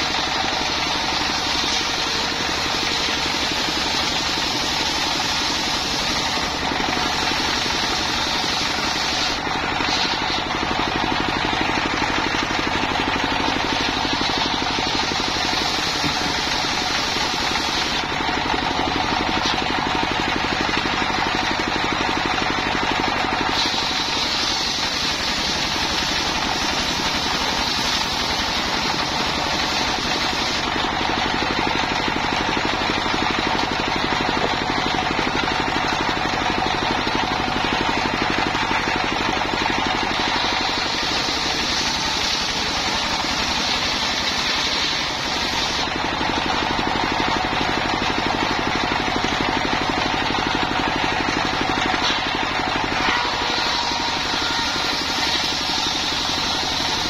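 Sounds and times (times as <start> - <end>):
diesel engine running: 0.0 - 57.0
saw blade cutting timber: 0.0 - 57.0.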